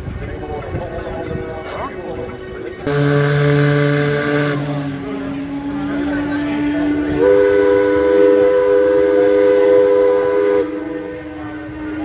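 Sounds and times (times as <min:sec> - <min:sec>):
steam tug whistle long note: 0:02.9 - 0:04.8, 0:07.0 - 0:11.2.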